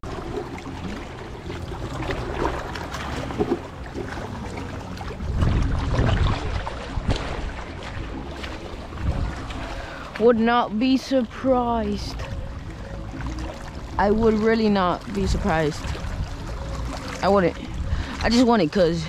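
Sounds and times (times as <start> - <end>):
water sounds: 0.0 - 19.0
wind rumble on microphone: 0.0 - 19.0.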